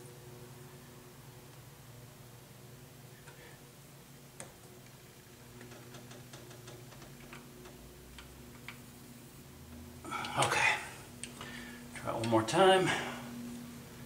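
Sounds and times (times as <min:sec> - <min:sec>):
faint steady low hum: 0:00.0 - 0:14.0.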